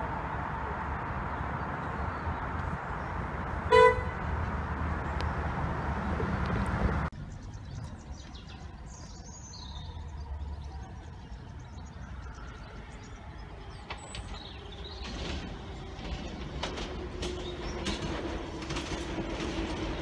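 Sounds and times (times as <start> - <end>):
train approaching: 0.0 - 20.0
bird chirps: 7.2 - 16.0
electric train running: 12.7 - 20.0.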